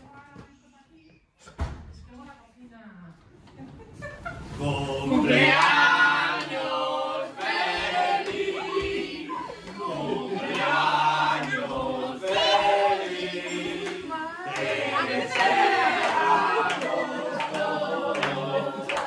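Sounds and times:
people shouting and cheering: 7.6 - 19.0.

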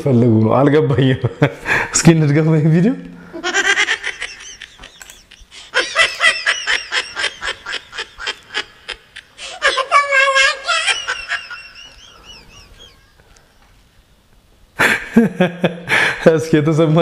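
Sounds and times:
high-pitched laughter: 3.4 - 13.3.

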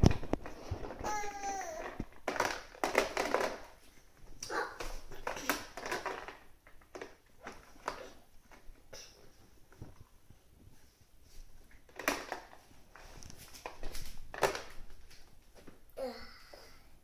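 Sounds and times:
plastic toys knocking: 0.0 - 3.8, 4.4 - 8.1, 11.9 - 12.6.

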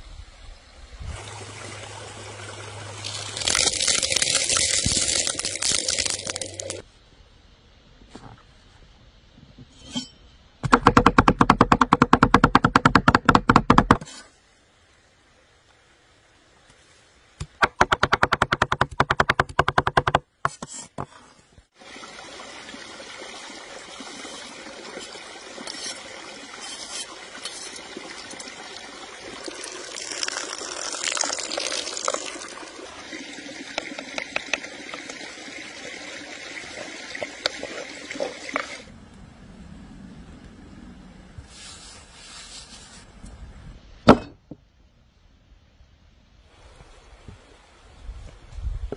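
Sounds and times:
stream rushing: 0.8 - 6.9, 21.8 - 39.0
knife scraping in wooden bowl: 24.3 - 27.9.

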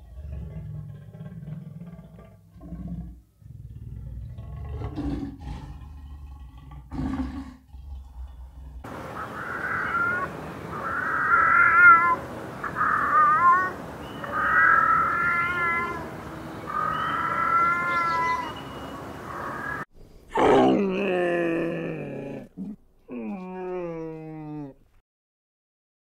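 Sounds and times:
camel calling: 8.9 - 19.8
cat meowing: 9.3 - 16.1, 16.7 - 18.6.

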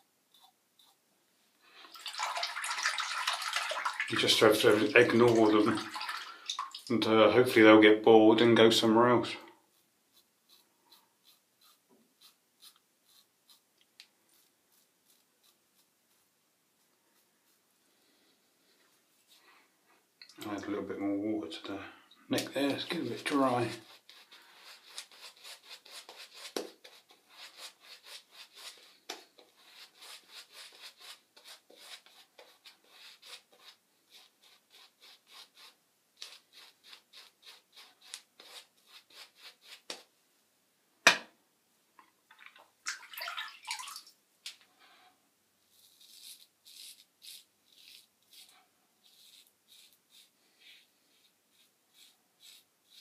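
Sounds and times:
sharp knock: 41.0 - 41.3.

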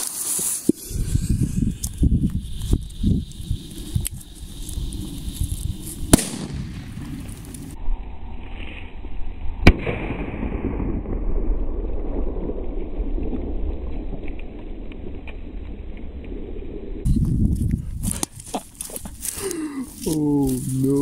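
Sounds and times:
low rumble: 0.8 - 18.1
firecracker bang: 6.0 - 7.8, 9.6 - 14.3.

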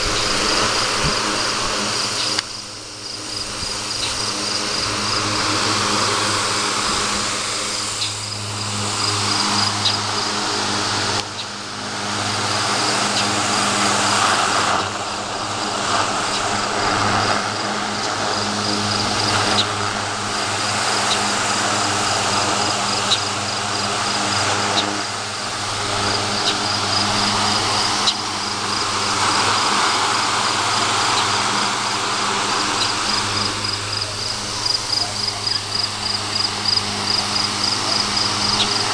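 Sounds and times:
air rushing off fan blades: 0.0 - 38.9
crickets chirping: 0.0 - 38.9
desk fan motor humming: 0.0 - 38.9.

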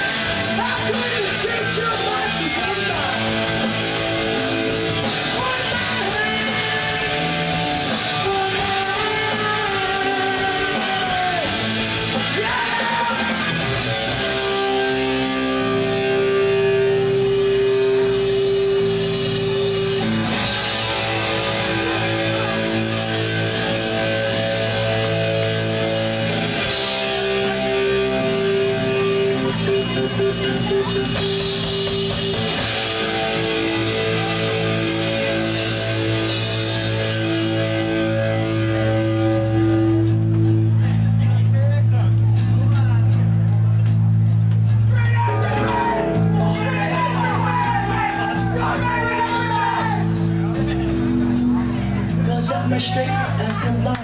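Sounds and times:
distorted electric guitar: 0.0 - 54.0
punk rock band playing: 0.0 - 54.0
person singing: 12.1 - 13.5.

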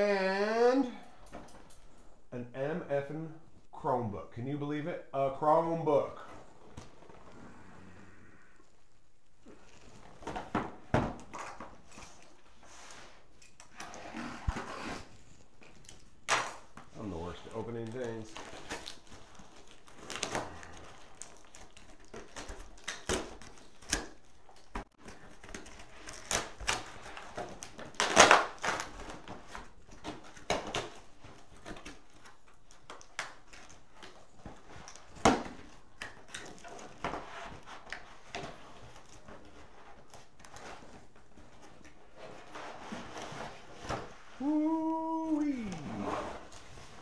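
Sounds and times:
cardboard ripping: 16.2 - 47.0.

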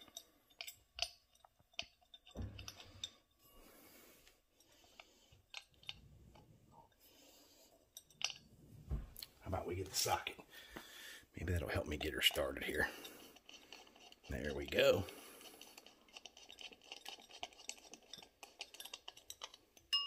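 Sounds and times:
metal hardware clicking and knocking: 0.0 - 3.2.

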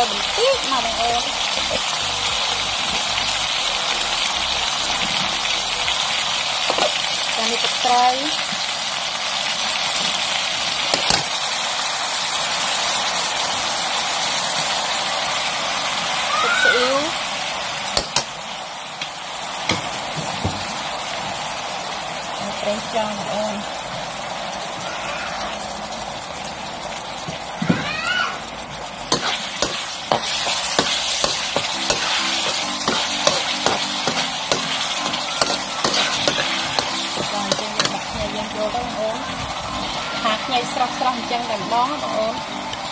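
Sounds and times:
meat sizzling in hot oil: 0.0 - 42.9
metal ladle scraping wok: 29.1 - 38.3.

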